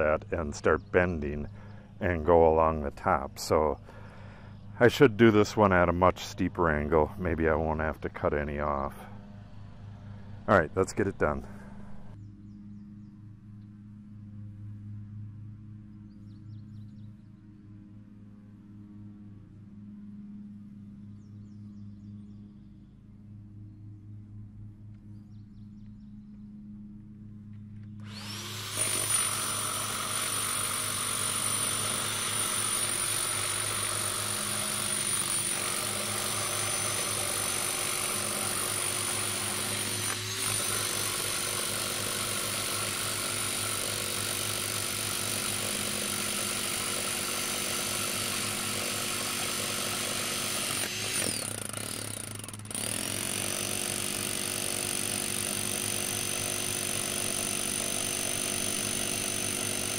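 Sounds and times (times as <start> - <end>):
rotary hammer pounding rod: 28.1 - 59.9.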